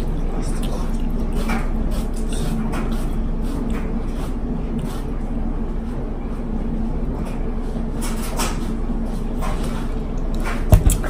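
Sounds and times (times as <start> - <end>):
faint slurps: 0.0 - 5.2
low room rumble: 0.0 - 11.0.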